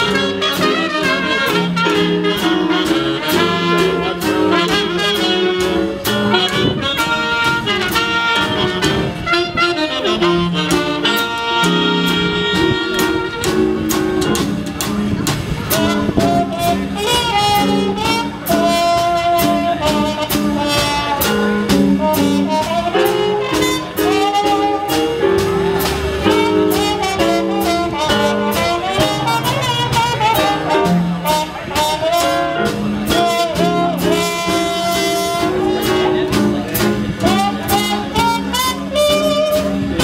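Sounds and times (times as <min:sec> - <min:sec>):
saxophone: 0:00.0 - 0:14.9, 0:15.6 - 0:40.0
trumpet lead line: 0:00.0 - 0:40.0
upright bass: 0:00.0 - 0:40.0
drum kit cymbals: 0:13.0 - 0:40.0.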